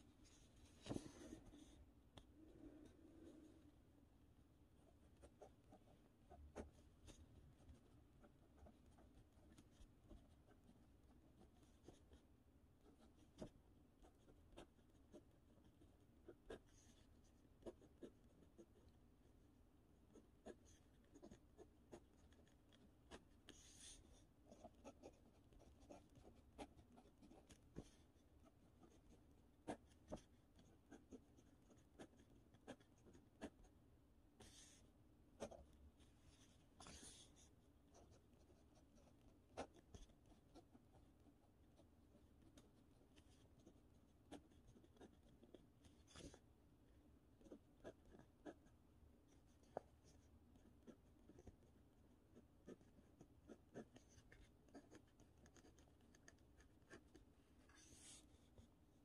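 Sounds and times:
pen writing on paper: 5.2 - 12.2, 12.8 - 18.9, 20.1 - 33.7, 42.5 - 46.4, 47.4 - 48.7, 52.3 - 58.2.

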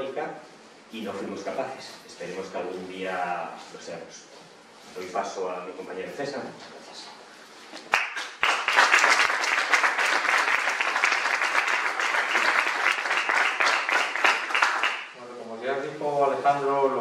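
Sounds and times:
audience applauding: 7.8 - 15.2.

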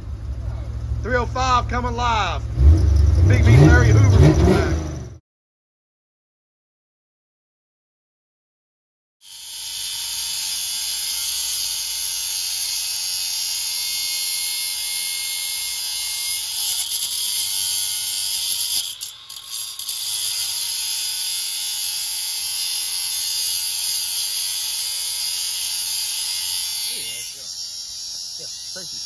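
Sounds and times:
abrasive wheel grinding steel: 13.5 - 29.0.

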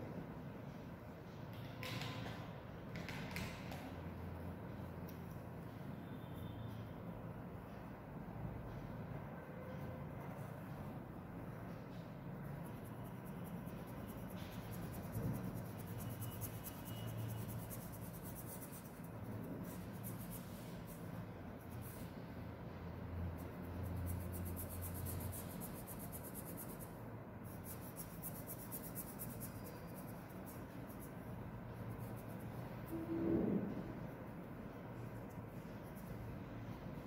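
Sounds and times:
steady low hum: 3.9 - 37.0
pen scratching on paper: 23.4 - 26.9.

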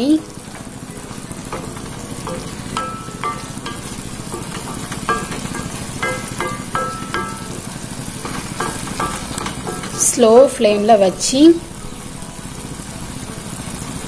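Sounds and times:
curry sizzling: 0.0 - 14.0
spatula scraping and knocking a pan: 0.6 - 10.8.

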